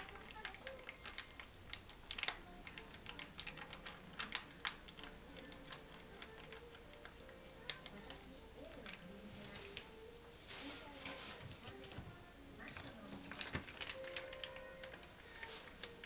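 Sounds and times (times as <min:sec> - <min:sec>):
foil pouch crinkling and tearing: 0:13.3 - 0:16.0.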